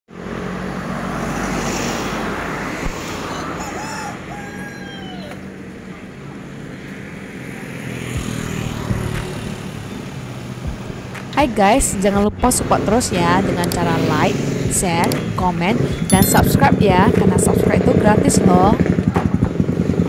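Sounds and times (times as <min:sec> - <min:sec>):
cars passing: 0:00.1 - 0:19.0
road traffic: 0:00.1 - 0:20.0
rooster crowing: 0:03.2 - 0:05.5.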